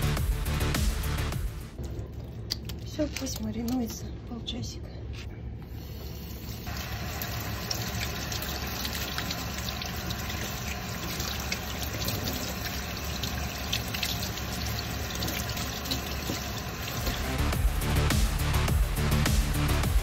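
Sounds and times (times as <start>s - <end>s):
tap running into sink: 15.0s - 17.5s.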